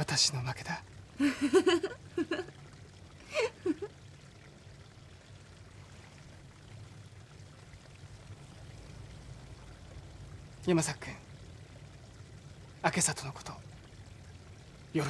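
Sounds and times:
faint low hum: 0.0s - 15.0s
woman laughing softly: 1.2s - 2.6s, 3.2s - 4.0s.

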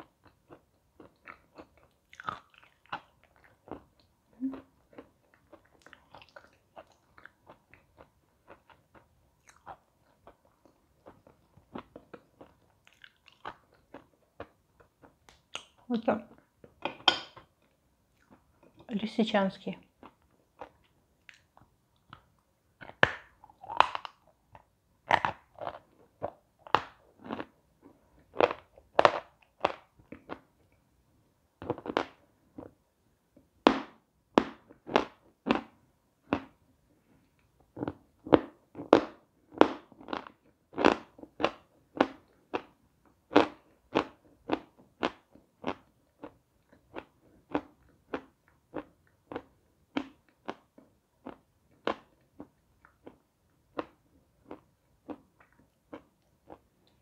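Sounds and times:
crunchy chewing of chalk: 0.0s - 15.8s, 20.0s - 30.5s.

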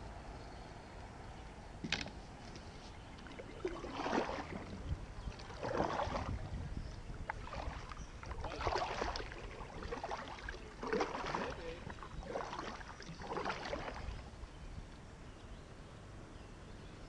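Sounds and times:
kayak paddle splashing in water: 3.0s - 14.3s.

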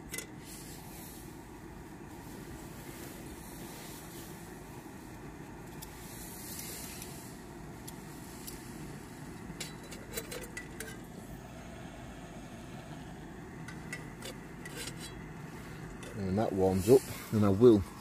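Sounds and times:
gas stove hissing: 0.0s - 18.0s.

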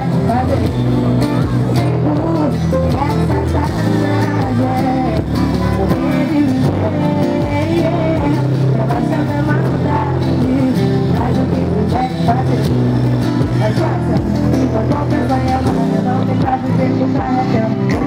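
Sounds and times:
amplified pop music: 0.0s - 18.0s
deep bass notes: 0.0s - 18.0s
woman singing: 0.0s - 18.0s.

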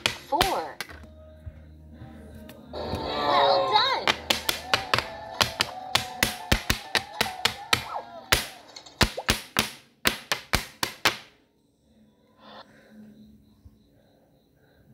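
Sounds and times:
cartoon sharp pops: 4.1s - 11.2s.

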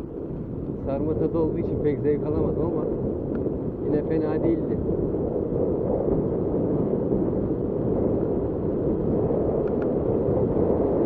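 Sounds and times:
wind buffeting microphone: 0.0s - 11.0s
faint ticks: 9.6s - 9.9s.

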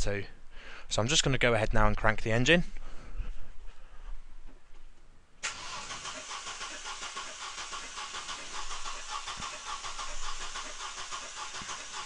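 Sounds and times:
starter motor cranking car engine: 5.4s - 12.0s.

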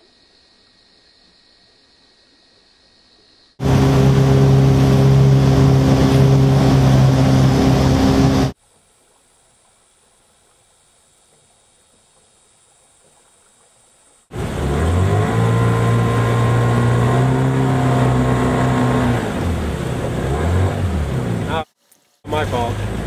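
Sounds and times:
boat motor running: 3.6s - 8.6s, 14.3s - 21.7s, 22.3s - 23.0s
faint hiss: 8.5s - 14.3s.

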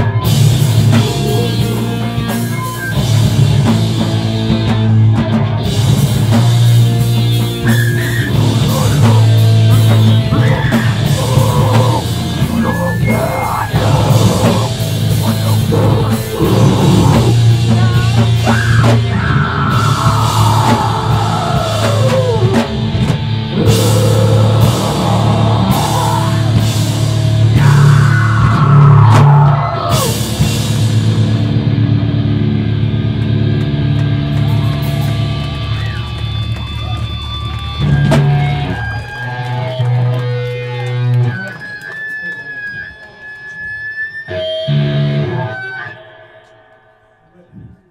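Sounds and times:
distorted electric guitars: 0.0s - 47.9s
screamed vocals: 7.6s - 22.7s, 23.5s - 30.3s.

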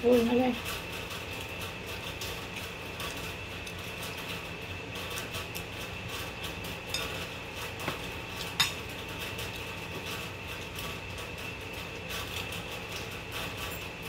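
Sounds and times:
steady background hum: 0.0s - 14.0s
tableware clinking: 8.5s - 8.8s.

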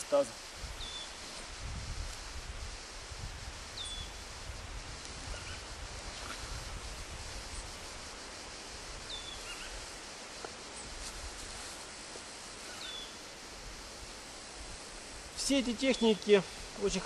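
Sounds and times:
rustling hiss: 0.0s - 17.0s
small bird chirping: 0.8s - 1.2s, 3.8s - 4.2s, 12.7s - 13.2s.

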